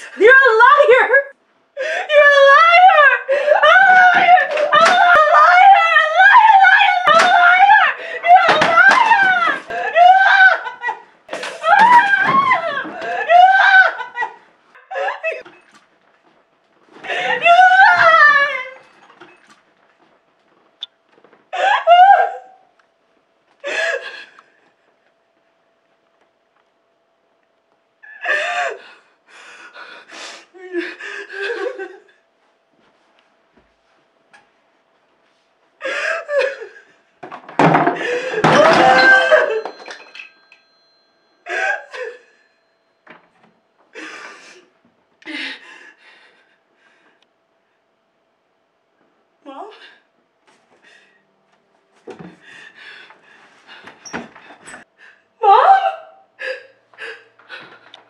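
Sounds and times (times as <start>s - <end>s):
woman sobbing: 0.0s - 15.5s, 17.0s - 18.8s, 21.5s - 22.7s, 29.8s - 32.2s, 35.8s - 37.0s, 37.8s - 40.2s, 41.4s - 42.4s, 55.1s - 57.8s
faint steady hum: 0.0s - 58.0s.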